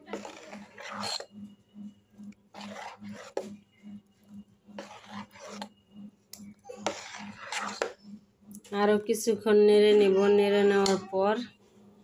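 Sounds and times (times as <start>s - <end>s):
spoon scraping metal bowl: 0.0s - 1.4s, 2.5s - 3.6s, 4.3s - 5.8s, 6.4s - 8.1s, 10.6s - 11.1s.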